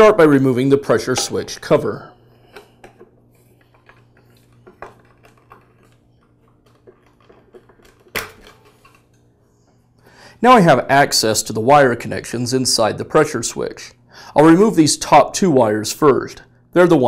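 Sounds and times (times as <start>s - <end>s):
plastic cover clack: 2.6s - 9.2s.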